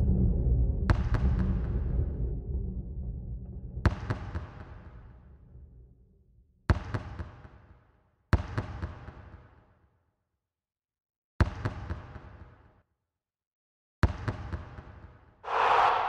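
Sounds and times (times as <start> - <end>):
low rumble: 0.0 - 3.8, 15.5 - 16.0.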